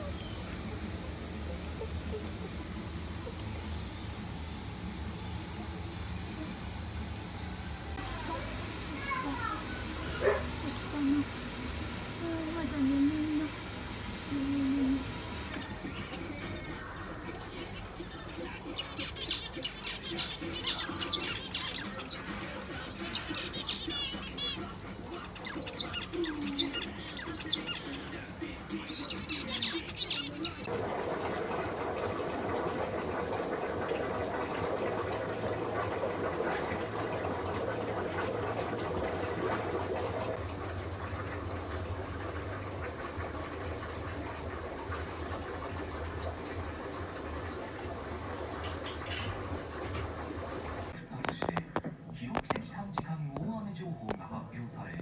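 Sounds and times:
low hum and hiss: 0.0s - 55.0s
finches chirping: 8.0s - 13.6s, 14.2s - 51.0s.

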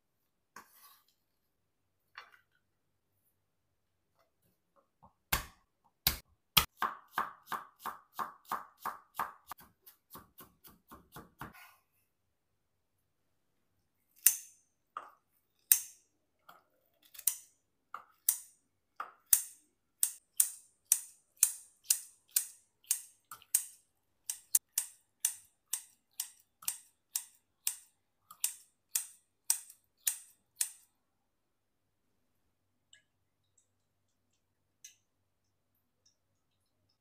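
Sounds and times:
knife chopping on wooden board: 5.3s - 11.6s.

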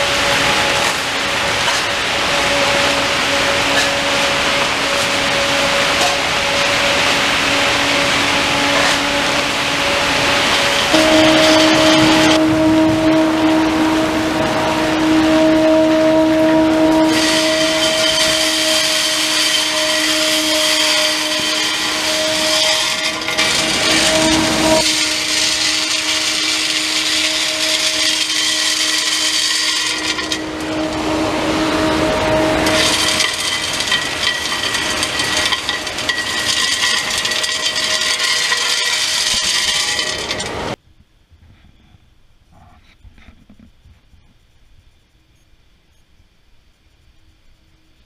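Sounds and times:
hose sucking up granules: 0.0s - 40.8s
industrial vacuum humming: 0.0s - 40.8s.

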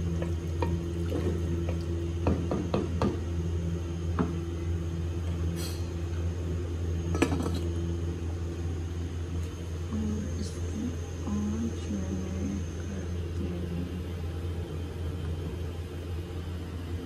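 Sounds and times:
steady low hum: 0.0s - 17.0s
wooden spoon knocking clay pot: 1.7s - 3.2s.

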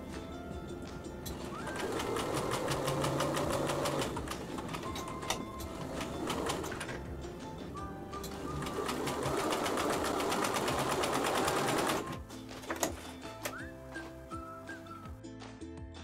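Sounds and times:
sewing machine stitching: 1.3s - 7.0s, 8.2s - 12.9s.

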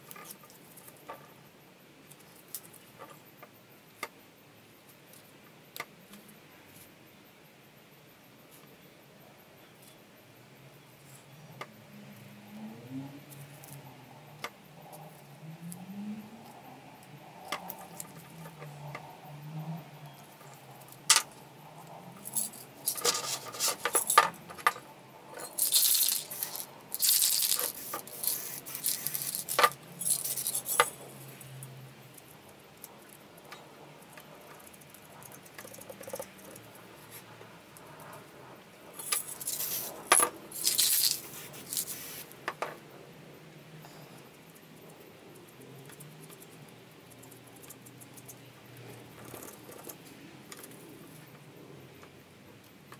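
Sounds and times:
cans clicking and rattling: 22.3s - 24.8s, 25.4s - 31.0s, 39.1s - 42.2s
spray paint can hissing: 26.0s - 29.5s, 40.7s - 42.3s.

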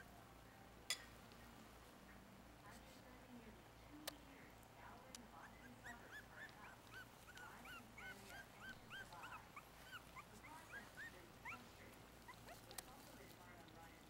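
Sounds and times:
puppies whimpering: 5.4s - 13.7s.

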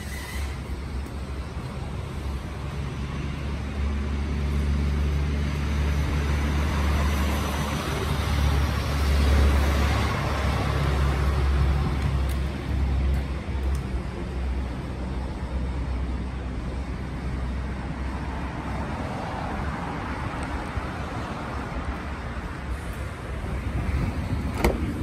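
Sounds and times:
low engine hum: 0.0s - 25.0s
vehicle passing by: 2.9s - 13.0s.

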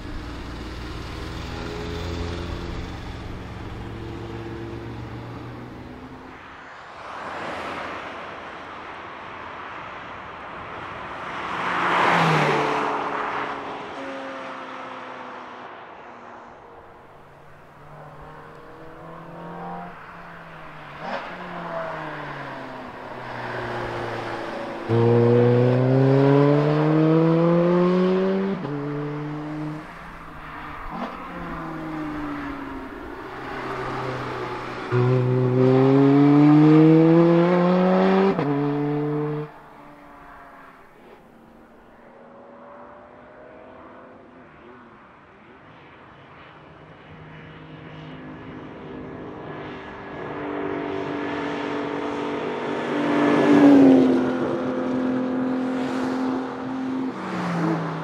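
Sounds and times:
sports car engine accelerating: 0.0s - 6.3s, 17.6s - 39.7s
quieter engine: 0.0s - 6.4s, 15.0s - 56.8s.

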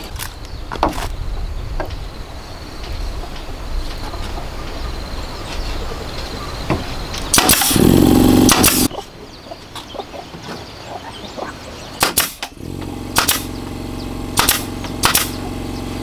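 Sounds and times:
loud burst: 7.3s - 8.9s, 12.0s - 15.5s
pneumatic nail gun firing: 7.3s - 8.9s, 12.0s - 16.0s.

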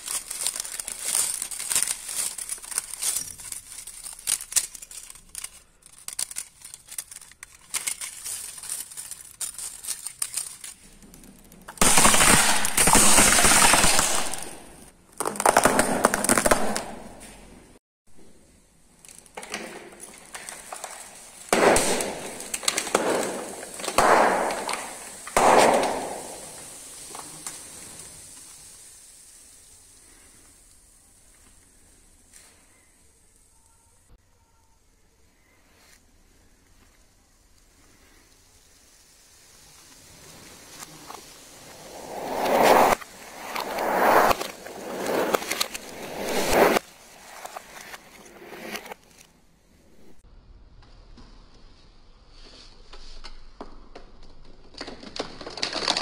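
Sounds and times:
tyre crackling over bottles: 0.0s - 17.4s, 19.0s - 32.6s, 39.2s - 49.3s
bottles and balloons bursting: 10.8s - 17.3s, 19.9s - 30.7s, 37.6s - 49.1s
air hissing: 20.2s - 33.2s, 35.4s - 49.0s.

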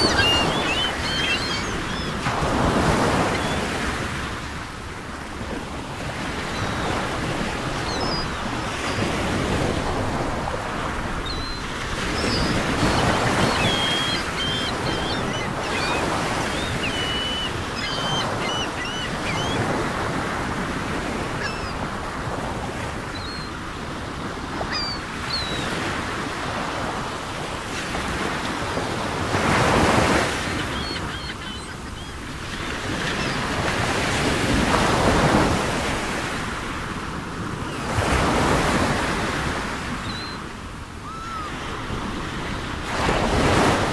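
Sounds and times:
bird chirps: 0.0s - 2.1s, 12.2s - 19.6s, 30.6s - 32.2s
ocean surf: 0.0s - 43.9s.

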